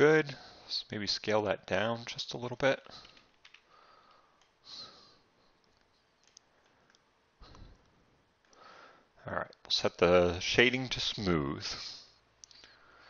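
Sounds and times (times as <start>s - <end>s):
computer mouse clicks: 2.9s - 4.6s, 5.6s - 7.0s
soft breath: 2.9s - 5.6s, 8.5s - 9.2s, 11.8s - 13.0s.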